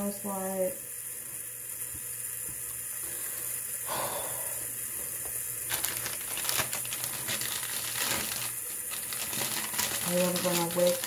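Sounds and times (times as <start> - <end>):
plastic packet crinkling: 5.7 - 11.0.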